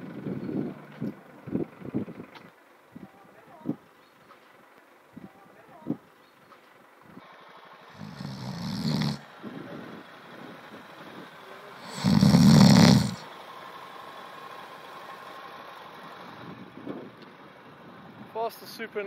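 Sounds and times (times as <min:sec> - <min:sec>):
man snoring: 0:07.9 - 0:09.3, 0:11.8 - 0:13.3.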